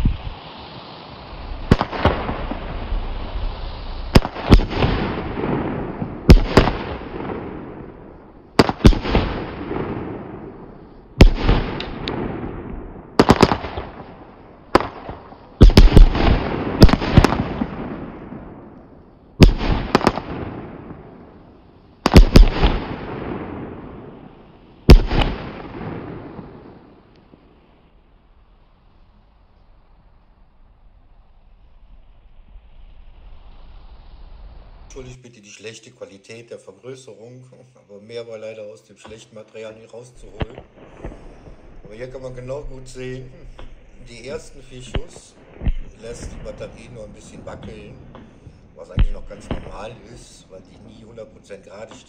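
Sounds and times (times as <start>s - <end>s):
firework bangs: 0.0s - 28.6s, 40.2s - 52.0s.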